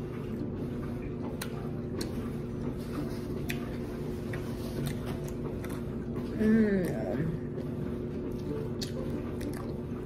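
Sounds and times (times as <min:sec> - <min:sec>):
chewing crunches: 0:02.9 - 0:07.0, 0:08.2 - 0:10.0.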